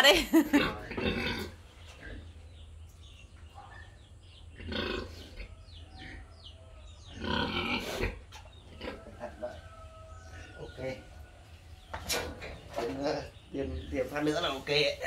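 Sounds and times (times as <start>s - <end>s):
pig grunting: 0.5s - 2.4s, 4.5s - 6.3s, 7.0s - 9.5s.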